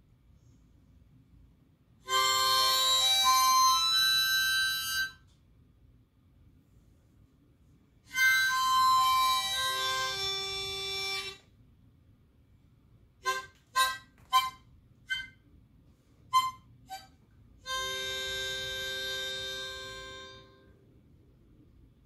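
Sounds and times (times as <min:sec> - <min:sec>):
reed wind instrument playing chords: 0:08.1 - 0:11.4, 0:16.4 - 0:20.7.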